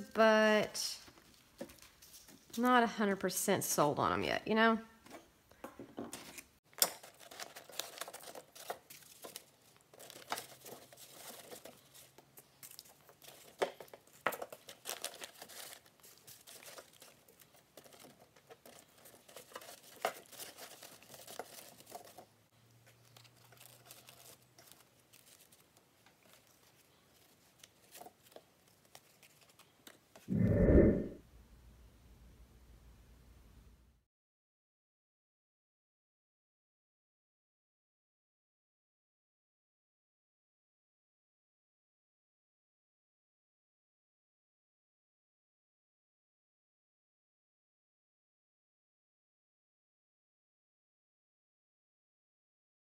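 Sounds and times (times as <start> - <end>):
paper crinkling and rustling: 1.1 - 2.6, 6.1 - 30.2.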